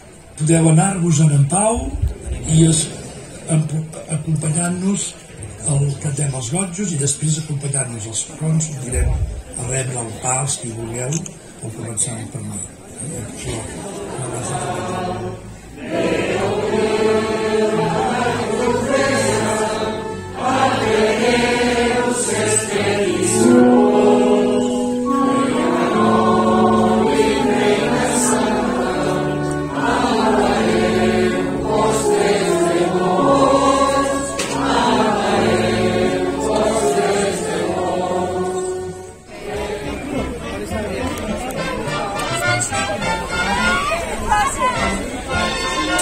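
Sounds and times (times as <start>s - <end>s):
choir singing a hymn: 13.4s - 41.0s.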